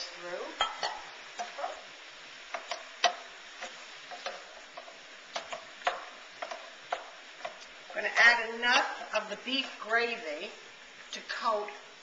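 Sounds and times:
faint sizzle: 0.0 - 12.0
utensil scraping a skillet: 0.6 - 8.2.

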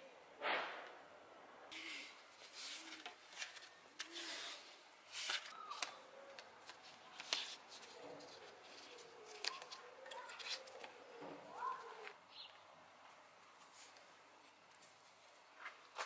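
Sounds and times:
tape rustling on handlebars: 1.8 - 12.2.

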